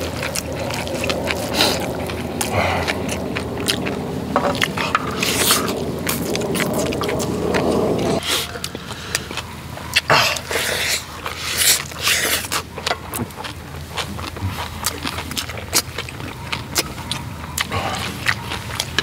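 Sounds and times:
slurping: 0.0s - 9.4s
chewing: 0.0s - 19.0s.

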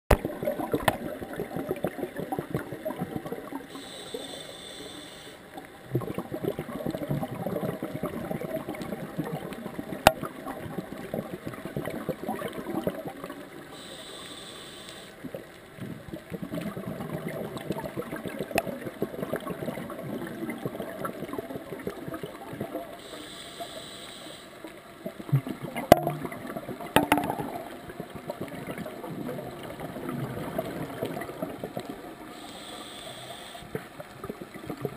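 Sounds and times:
hissing regulator inhale: 3.7s - 5.5s, 13.7s - 15.2s, 23.0s - 24.6s, 32.3s - 33.8s
sharp knocks: 27.0s - 27.5s.

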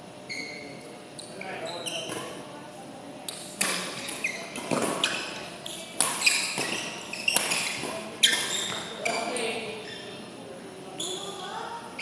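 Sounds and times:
shoes squeaking on court floor: 0.3s - 2.4s, 3.6s - 10.3s, 11.0s - 11.4s
racket striking shuttlecock: 3.3s - 5.1s, 6.0s - 8.9s.

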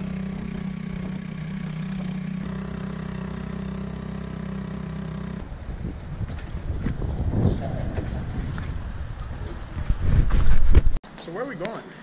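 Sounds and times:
boat engine running: 0.0s - 6.1s.

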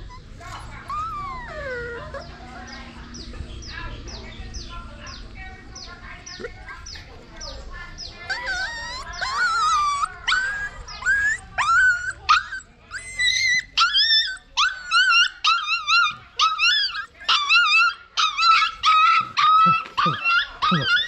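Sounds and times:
puppies whining: 0.0s - 3.4s, 8.0s - 21.0s.

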